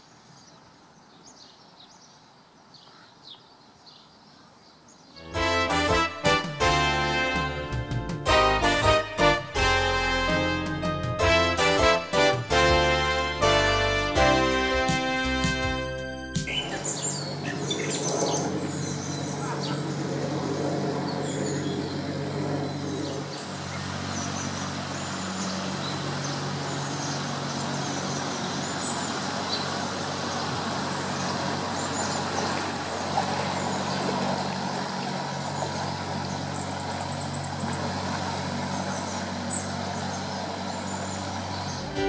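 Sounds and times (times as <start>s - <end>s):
small birds chirping: 0.0s - 5.2s, 16.4s - 34.5s, 35.3s - 42.0s
boat engine running: 5.2s - 42.0s
propeller wash churning water: 5.4s - 42.0s.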